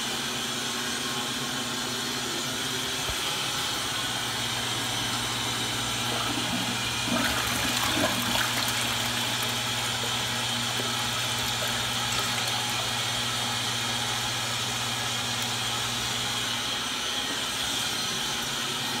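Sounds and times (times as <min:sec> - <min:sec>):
toilet flushing: 0:03.7 - 0:19.0
water gurgling: 0:05.0 - 0:13.4.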